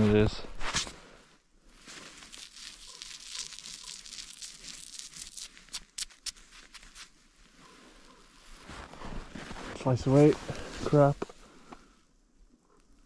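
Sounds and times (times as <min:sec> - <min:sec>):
gear crackling and crinkling: 0:01.6 - 0:12.0.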